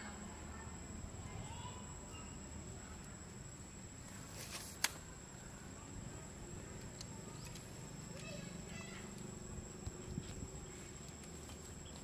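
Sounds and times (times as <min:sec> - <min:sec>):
faint high-pitched tone: 0:00.0 - 0:03.2.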